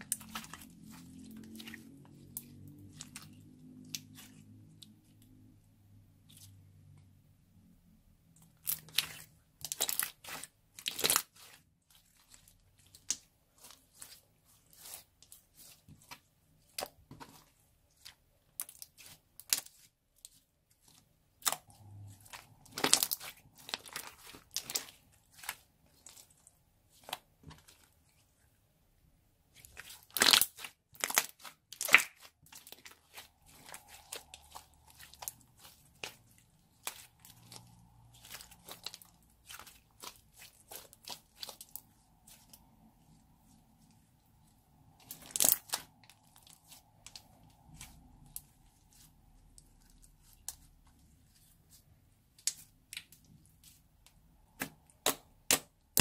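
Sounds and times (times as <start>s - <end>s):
slime crackling and popping: 8.6s - 17.4s, 20.8s - 27.8s, 29.6s - 42.6s, 45.0s - 50.7s, 54.5s - 56.0s.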